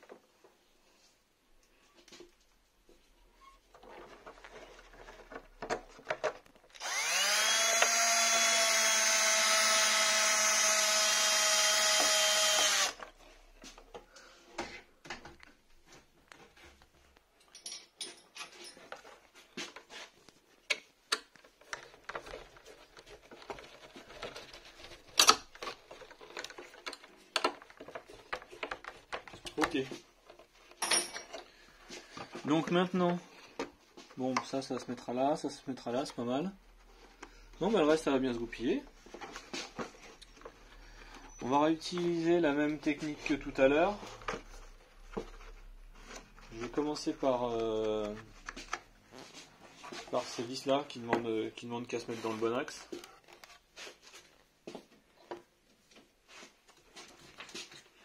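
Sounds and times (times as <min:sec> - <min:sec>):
electric drill whining: 0:06.8 - 0:13.1.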